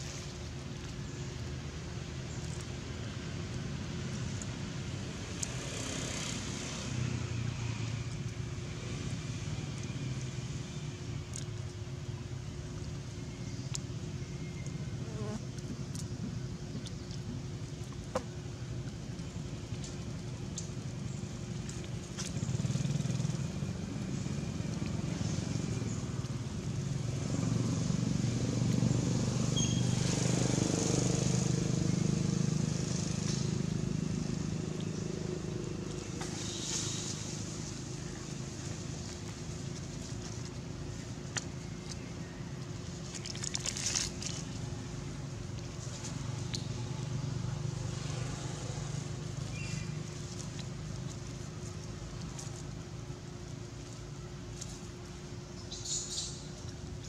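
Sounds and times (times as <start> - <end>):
vehicle engine running: 15.8 - 57.0
dry leaves crackling: 33.4 - 47.1, 47.8 - 55.7.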